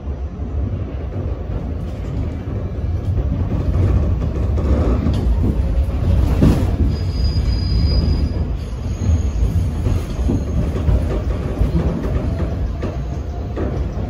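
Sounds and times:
faint high wheel squeal: 0:06.7 - 0:10.9.

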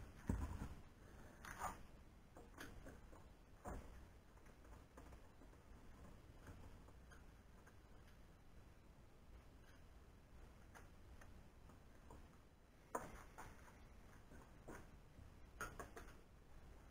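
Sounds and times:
faint handling clicks and rustles: 0:09.2 - 0:16.9.

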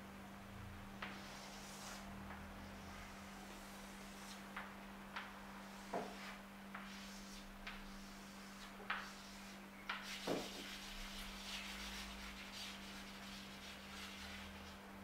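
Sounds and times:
chalk taps on chalkboard: 0:01.0 - 0:01.4, 0:04.2 - 0:10.8
chalk rubbing on chalkboard: 0:01.0 - 0:04.4, 0:05.6 - 0:14.8.

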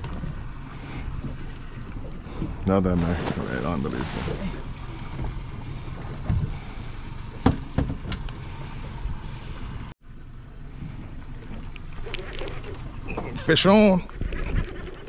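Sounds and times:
water noise around boat: 0:00.0 - 0:15.0
wind: 0:00.0 - 0:15.0.

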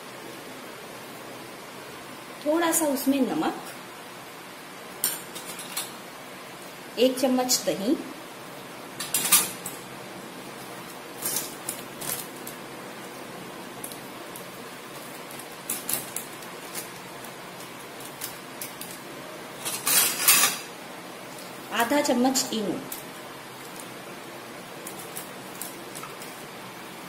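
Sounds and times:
faint steady hiss: 0:00.0 - 0:27.0.

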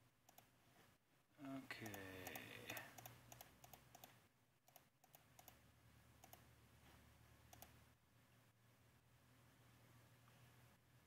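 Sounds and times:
computer mouse clicking: 0:00.3 - 0:00.5, 0:01.8 - 0:05.6, 0:06.2 - 0:06.5, 0:07.5 - 0:07.8.

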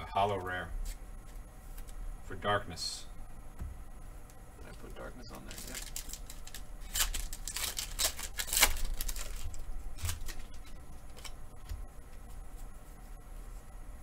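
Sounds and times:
foil wrapper tearing: 0:05.3 - 0:11.4
cards rustling: 0:05.3 - 0:12.3.

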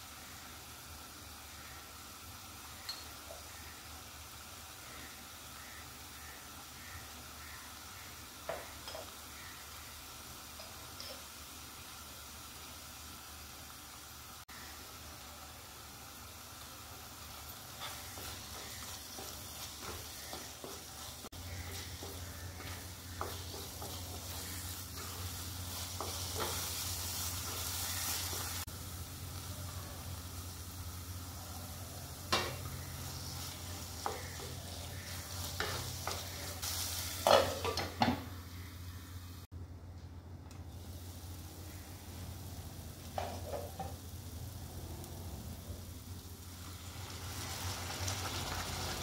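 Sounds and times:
paste sizzling in oil: 0:00.0 - 0:38.1, 0:40.7 - 0:49.0
spatula scraping pan: 0:17.7 - 0:28.7, 0:32.3 - 0:38.0.

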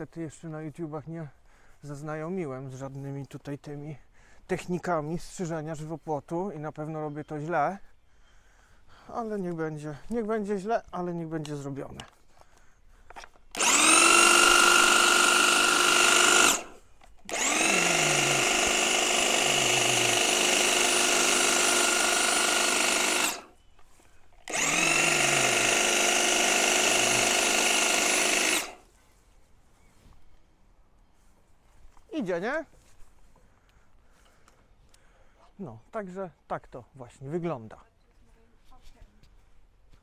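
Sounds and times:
electric hedge trimmer whining: 0:13.5 - 0:23.6, 0:24.4 - 0:28.9.

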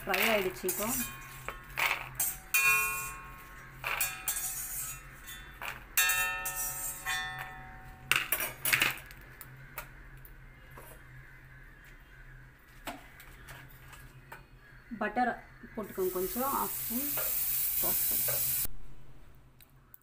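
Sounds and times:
metal ladle clanking against wok: 0:00.1 - 0:08.8.

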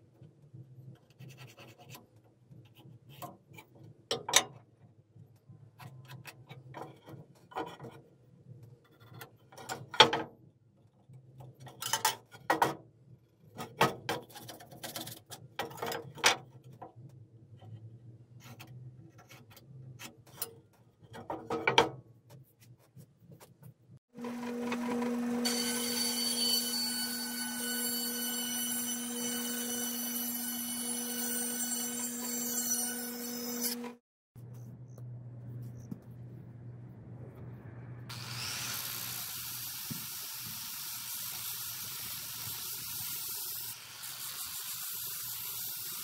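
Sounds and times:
pencil scratching on wood: 0:01.0 - 0:03.4
faint low hum: 0:34.4 - 0:38.1.

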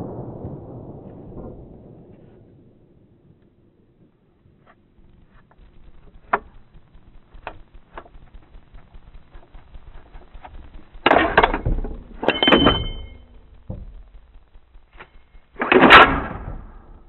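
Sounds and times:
metallic clatter of gun action: 0:11.1 - 0:14.1, 0:15.0 - 0:16.8
loud gunshot: 0:14.9 - 0:17.0.

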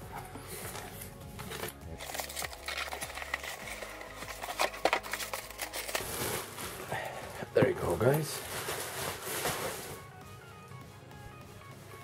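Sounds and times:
cardboard scraping: 0:00.6 - 0:06.9, 0:07.8 - 0:10.1
plastic bag crinkling: 0:00.6 - 0:10.6.

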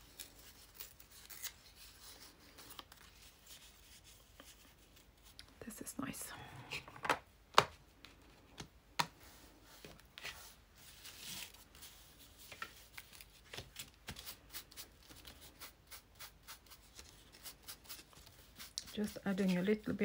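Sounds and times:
paper sliding and rustling: 0:09.3 - 0:15.6.

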